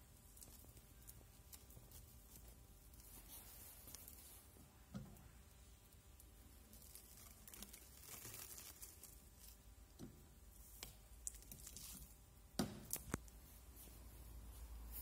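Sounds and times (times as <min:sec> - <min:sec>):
plastic film crinkling: 0:06.4 - 0:09.7.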